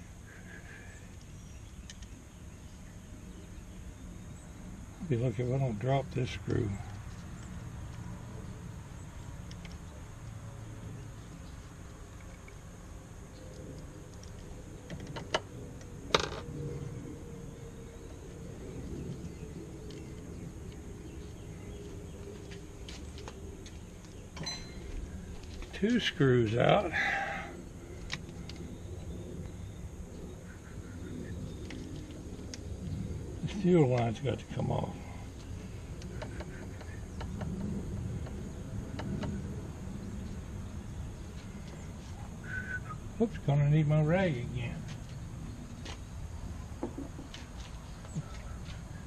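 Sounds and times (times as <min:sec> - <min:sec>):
low background rumble: 0:00.0 - 0:49.0
low steady hum: 0:00.0 - 0:49.0
ringing metallic clink: 0:24.4 - 0:24.8.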